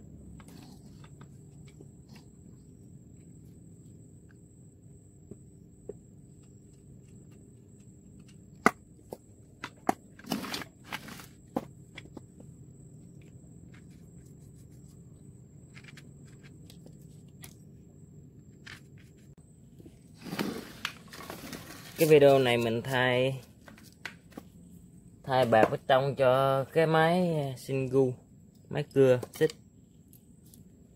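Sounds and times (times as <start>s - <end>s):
plastic parts clicking and knocking: 5.8s - 12.4s
rustling scrape: 10.2s - 11.4s, 20.1s - 22.8s.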